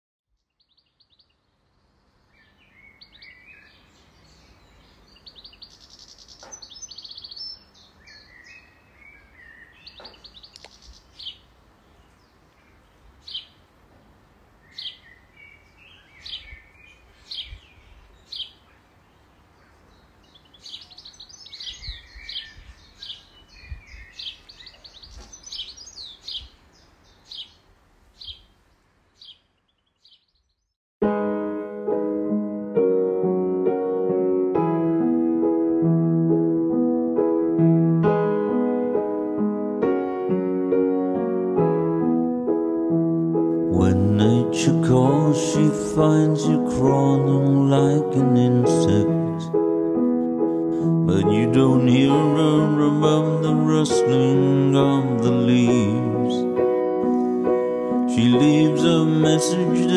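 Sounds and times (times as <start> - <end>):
songbirds chirping and trilling: 0.3 - 30.8, 43.3 - 59.9.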